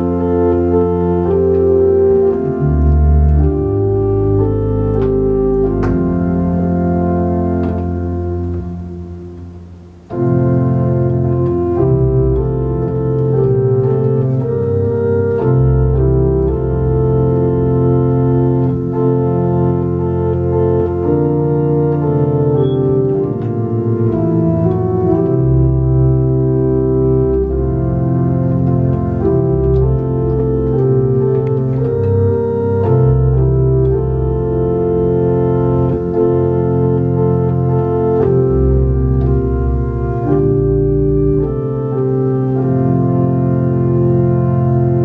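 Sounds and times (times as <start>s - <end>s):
organ playing sustained chords: 0.0s - 45.0s.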